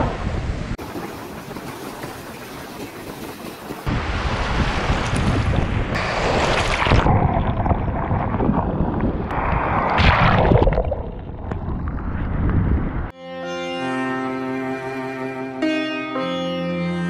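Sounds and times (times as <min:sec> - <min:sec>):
surf breaking and wash rushing: 0:00.0 - 0:13.1
wind on microphone: 0:00.0 - 0:13.1.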